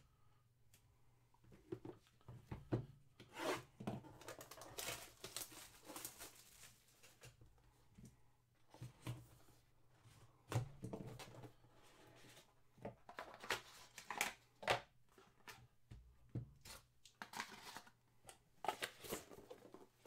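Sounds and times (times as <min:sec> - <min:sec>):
cardboard rustling and tearing: 0:04.2 - 0:07.3.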